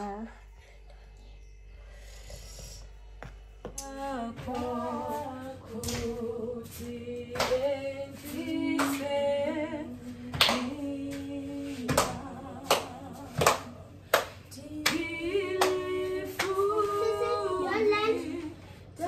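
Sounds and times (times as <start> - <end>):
voices singing in harmony: 3.8 - 19.0
hand clapping: 7.4 - 7.7, 8.7 - 9.2, 10.4 - 10.8, 11.9 - 16.7.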